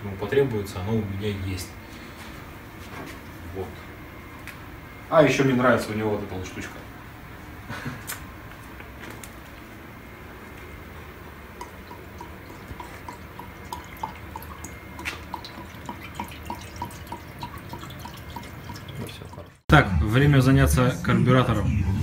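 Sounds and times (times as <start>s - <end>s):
liquid glugging from jug: 11.6s - 19.6s.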